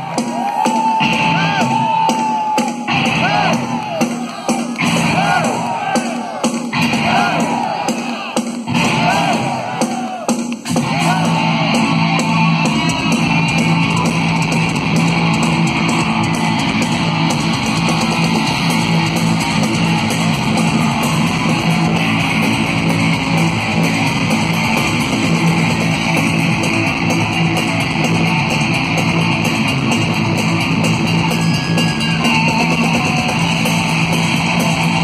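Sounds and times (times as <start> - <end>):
bass guitar: 0.0 - 2.1, 2.9 - 4.1, 4.7 - 8.0, 8.7 - 9.8, 10.6 - 35.0.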